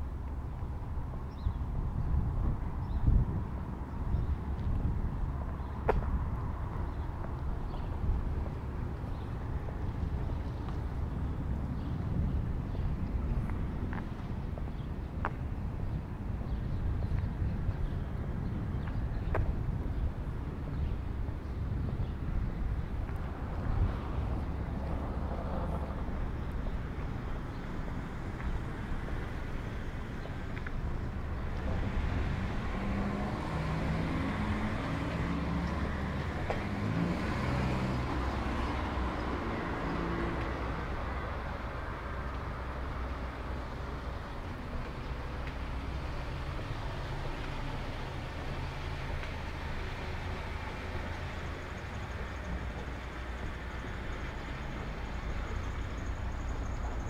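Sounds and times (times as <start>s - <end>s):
traffic rumble: 0.0s - 57.0s
vehicle passing: 27.1s - 57.0s.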